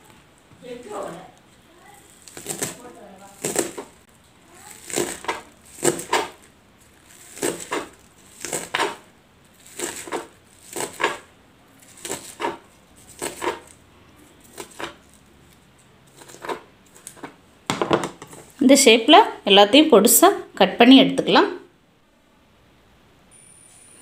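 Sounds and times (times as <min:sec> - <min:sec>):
knife chopping on cutting board: 0:03.4 - 0:03.9, 0:04.8 - 0:06.4, 0:07.3 - 0:09.0, 0:09.7 - 0:11.3, 0:12.0 - 0:12.6, 0:13.2 - 0:13.7, 0:14.5 - 0:15.0, 0:16.2 - 0:18.4.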